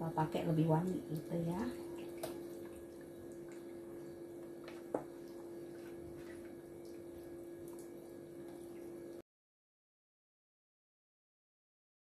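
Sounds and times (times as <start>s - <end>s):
background hum: 0.0s - 9.2s.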